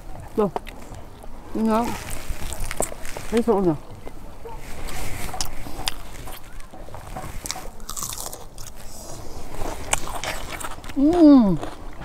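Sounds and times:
crunchy clicks: 0.5s - 9.0s
person biting and chewing food: 0.6s - 12.0s.

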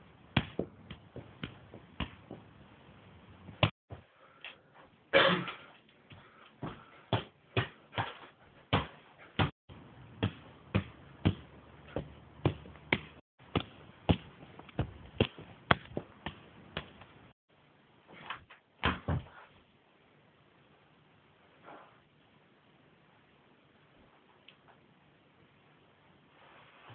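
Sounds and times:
foot kicking football: 0.4s - 2.5s, 10.2s - 17.0s.

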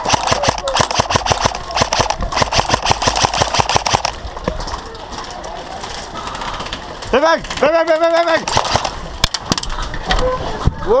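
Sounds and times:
airsoft rifle rapid firing: 0.0s - 4.2s, 8.4s - 9.5s
scattered clicks: 0.0s - 6.8s.

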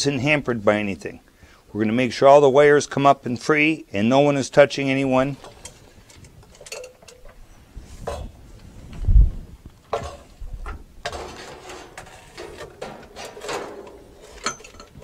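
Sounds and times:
pipes and chain knocking and clinking: 5.4s - 7.5s, 11.0s - 15.0s
rubbing and scraping: 9.9s - 15.0s.

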